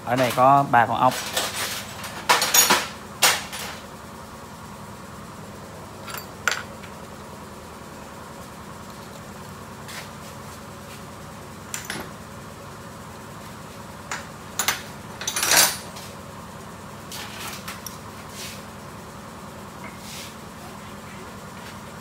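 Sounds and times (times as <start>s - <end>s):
metal tools clinking: 6.0s - 6.7s, 14.6s - 15.9s.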